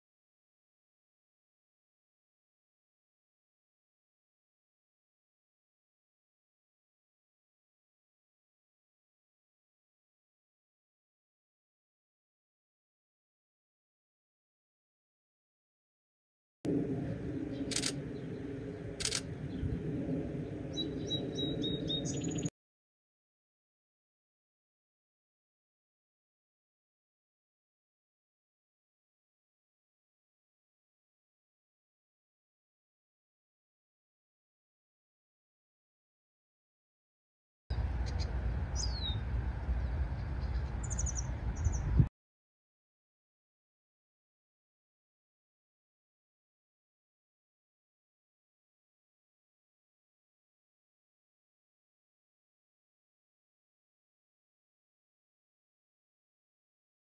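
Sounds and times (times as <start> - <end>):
low steady rumble: 16.7 - 22.5, 37.7 - 42.1
small bird chirping: 20.7 - 22.5, 38.0 - 39.2, 40.2 - 42.0.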